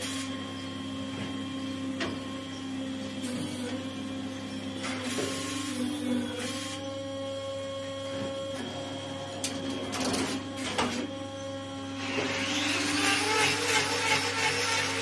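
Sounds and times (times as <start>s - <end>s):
electric motor hum: 0.0s - 15.0s
handheld grinder running: 12.0s - 15.0s.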